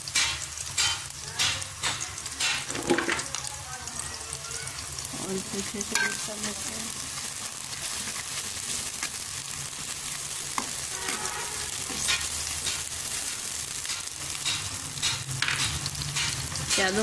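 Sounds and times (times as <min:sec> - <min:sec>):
onions sizzling: 0:00.0 - 0:17.0
metal spoon scraping a pot: 0:10.5 - 0:17.0.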